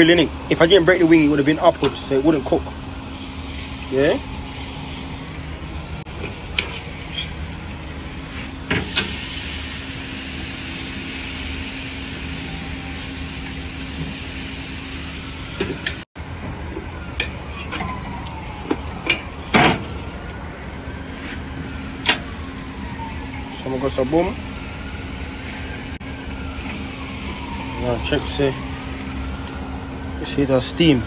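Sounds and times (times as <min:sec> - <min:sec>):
chicken sizzling on grill: 0:00.0 - 0:31.0
metal clanking on grill: 0:01.1 - 0:02.8, 0:06.1 - 0:07.6, 0:08.7 - 0:09.2, 0:16.7 - 0:20.0.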